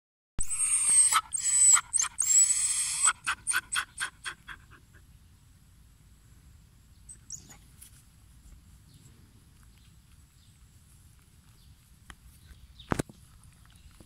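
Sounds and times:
dog panting: 0:03.1 - 0:05.0.

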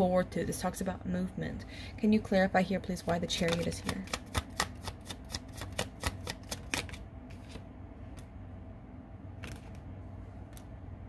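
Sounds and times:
cards being shuffled: 0:03.0 - 0:08.2, 0:09.4 - 0:09.8.

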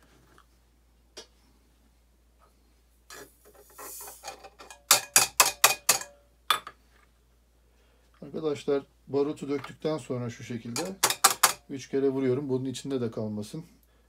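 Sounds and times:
powder grains hissing through funnel: 0:03.4 - 0:04.3.

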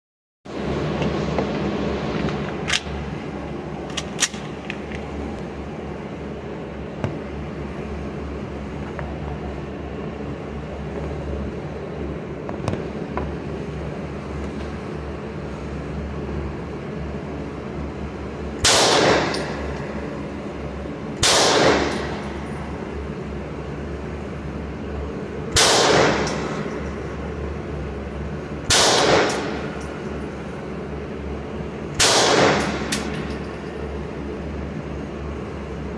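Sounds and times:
steady low hum: 0:00.5 - 0:35.9
pistol shots with echo: 0:18.6 - 0:19.6, 0:21.2 - 0:22.2, 0:25.6 - 0:26.6, 0:28.7 - 0:29.6, 0:32.0 - 0:33.1.

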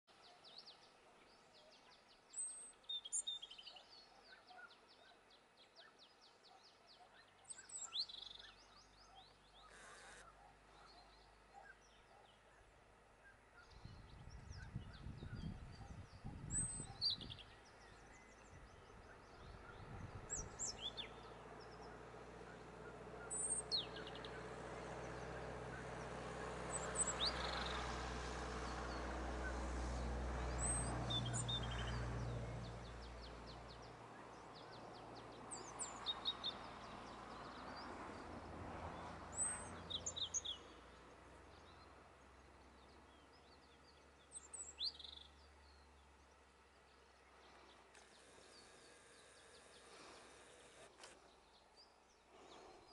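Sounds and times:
robin singing: 0:00.2 - 0:26.1, 0:41.5 - 0:50.2.

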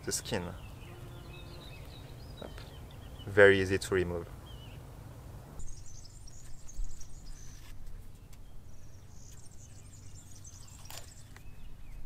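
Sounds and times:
small birds chirping: 0:00.0 - 0:04.9, 0:05.5 - 0:12.0
knife peeling mushroom skin: 0:10.6 - 0:11.5.

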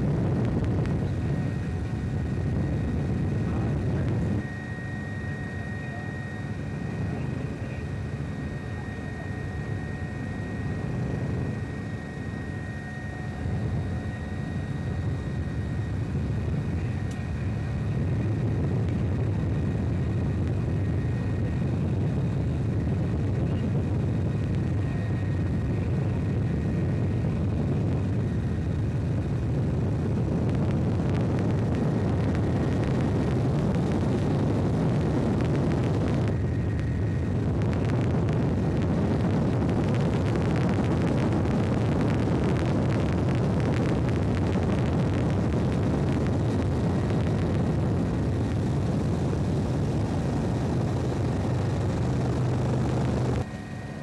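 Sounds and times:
aircraft engine drone: 0:00.0 - 0:54.0
faint thin whine: 0:00.0 - 0:54.0.

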